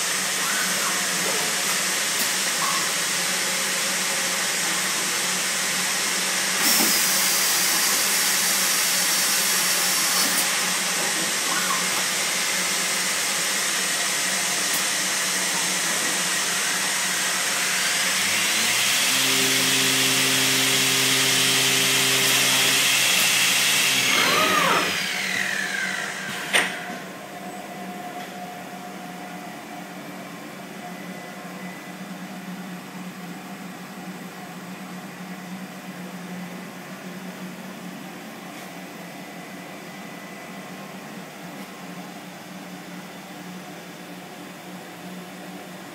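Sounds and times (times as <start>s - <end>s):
high machine whine: 0.0s - 32.6s
machine whirring hiss: 4.8s - 27.1s.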